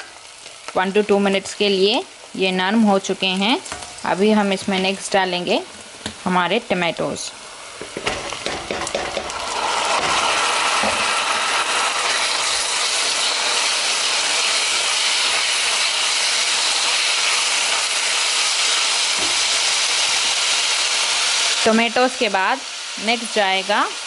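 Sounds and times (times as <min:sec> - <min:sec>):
tomatoes sizzling in hot oil: 0:00.0 - 0:24.0
spoon knocking on pan: 0:07.8 - 0:09.4.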